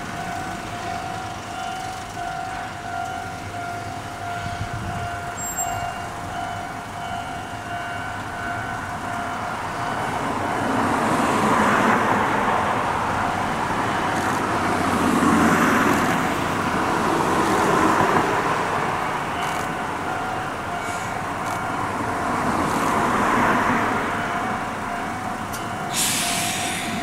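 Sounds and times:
electric train rolling in: 0.0s - 27.0s
hiss of air: 25.9s - 27.0s.

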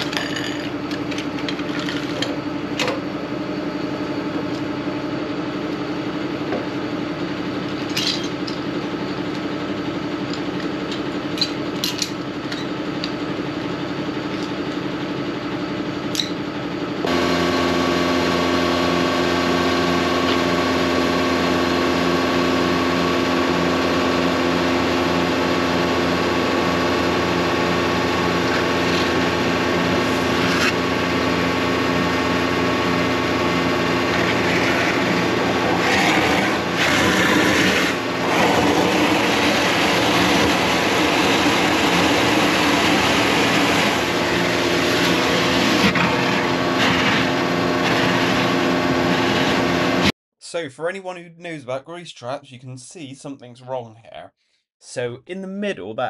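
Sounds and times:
vacuum pump running: 0.0s - 50.2s
hose sucking water: 33.8s - 50.0s.

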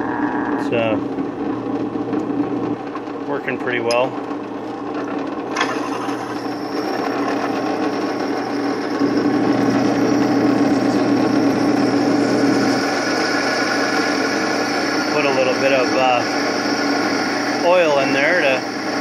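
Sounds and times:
drill press cutting steel: 5.0s - 19.0s.

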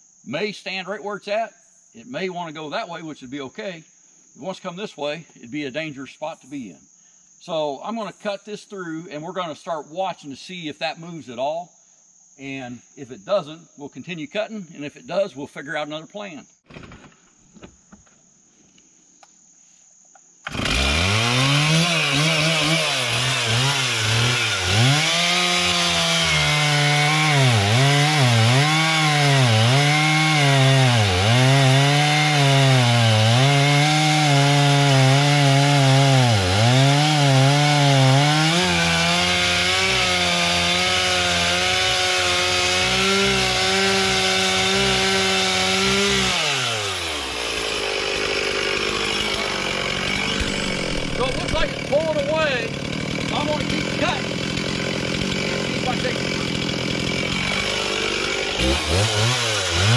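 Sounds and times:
chainsaw cutting wood: 20.4s - 59.9s.

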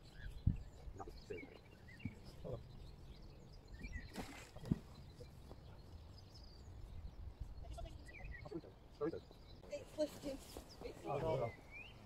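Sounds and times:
wind rumble on microphone: 0.0s - 1.2s
faint bird chirps: 0.0s - 12.0s.

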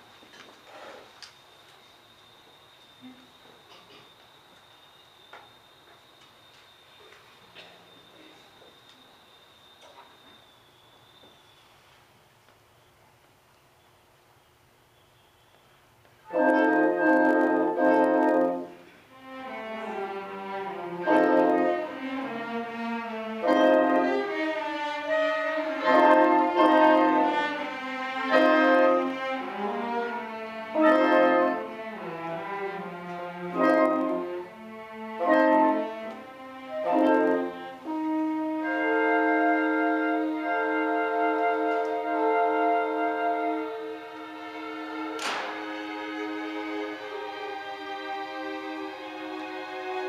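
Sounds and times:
orchestra playing classical music: 16.2s - 50.0s.

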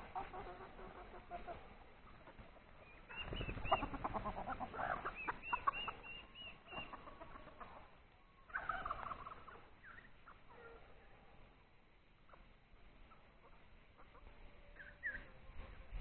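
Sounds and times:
chickens clucking and calling: 0.0s - 16.0s.

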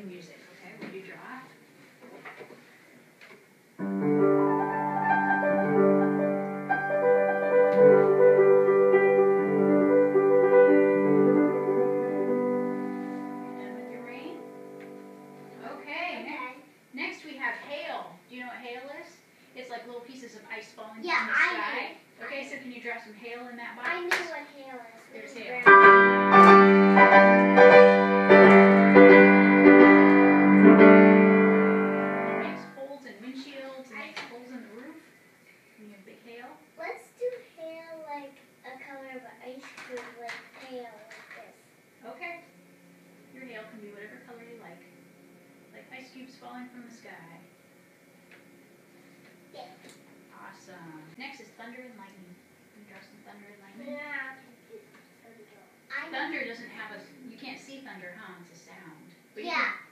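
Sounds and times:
grand piano playing: 3.8s - 16.3s, 25.6s - 32.8s, 42.6s - 51.2s.

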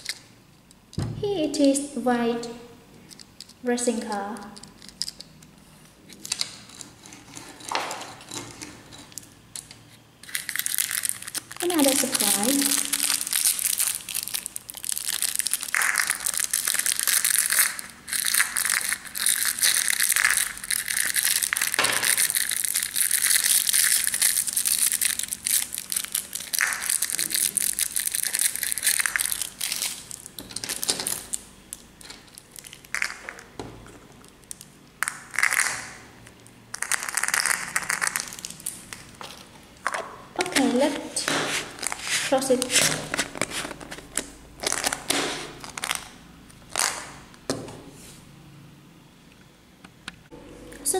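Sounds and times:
plastic wrapper crinkling: 0.0s - 0.2s, 6.2s - 47.2s.

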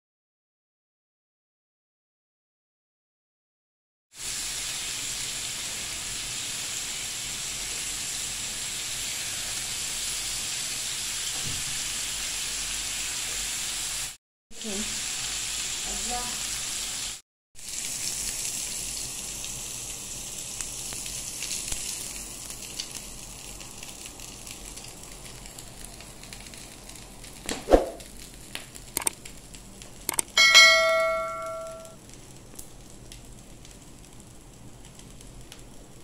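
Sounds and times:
chicken kebabs sizzling: 4.1s - 36.0s
clicks: 29.0s - 29.2s, 30.1s - 30.4s
bell-like ring: 30.4s - 32.0s.

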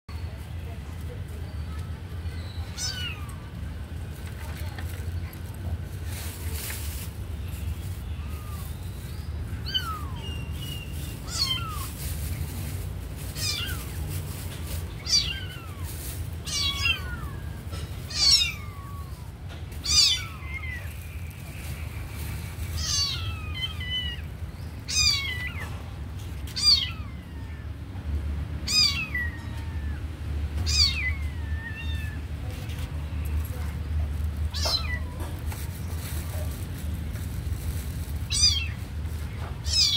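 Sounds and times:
kitten mewing: 13.4s - 14.0s, 15.0s - 20.9s, 22.8s - 24.3s, 24.9s - 25.6s, 26.5s - 27.8s, 28.7s - 32.3s.

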